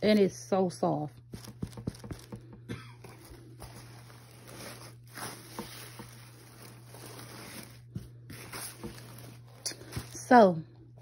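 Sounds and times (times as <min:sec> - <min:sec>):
fleece blanket rustling: 0:03.0 - 0:10.5
paper shred crinkling: 0:03.0 - 0:10.5.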